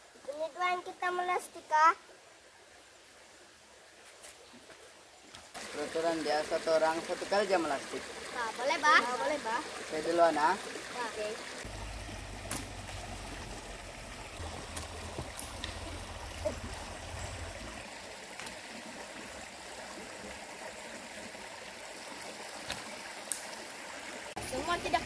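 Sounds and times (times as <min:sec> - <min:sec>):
stream rushing over rocks: 0:05.5 - 0:25.0.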